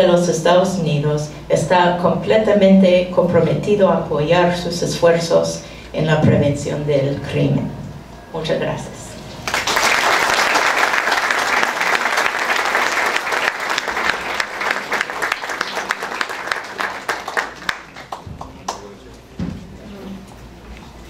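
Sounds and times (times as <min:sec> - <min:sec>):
audience applauding: 0:09.4 - 0:19.1.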